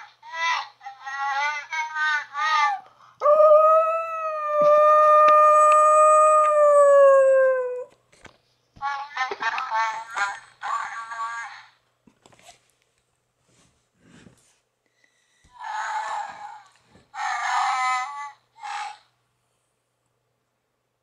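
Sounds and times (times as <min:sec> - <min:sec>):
dog howling: 0:03.2 - 0:07.9.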